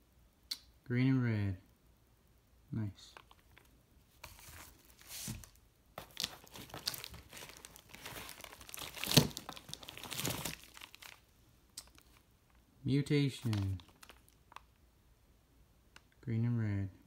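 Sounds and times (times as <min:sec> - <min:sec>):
packaging crinkling and rustling: 0:03.2 - 0:12.6, 0:13.3 - 0:14.8.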